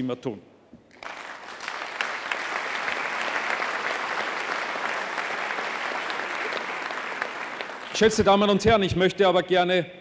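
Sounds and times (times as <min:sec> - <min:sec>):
audience applauding: 0:00.9 - 0:08.5.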